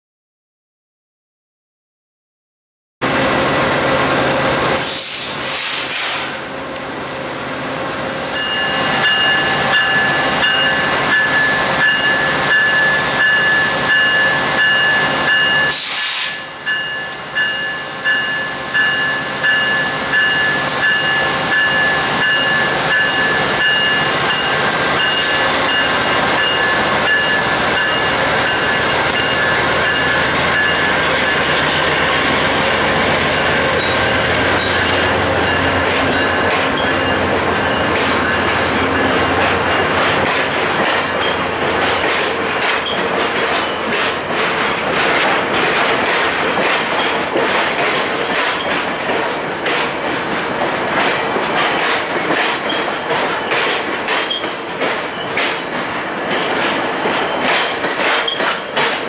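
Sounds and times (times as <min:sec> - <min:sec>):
diesel locomotive engine rumble: 0:03.0 - 0:59.0
air hiss bursts: 0:04.8 - 0:06.5, 0:15.7 - 0:16.5
steady high ringing: 0:16.4 - 0:40.0.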